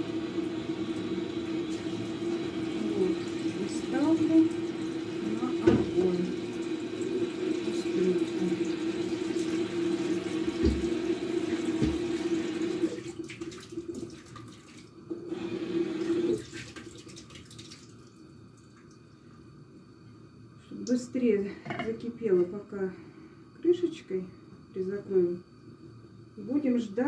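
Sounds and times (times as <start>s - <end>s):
kitchen tap running into sink: 0.0s - 18.9s.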